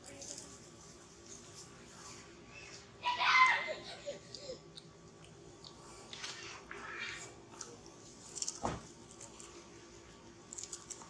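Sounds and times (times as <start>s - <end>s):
monkey crunching and chewing: 7.2s - 9.7s, 10.4s - 11.0s.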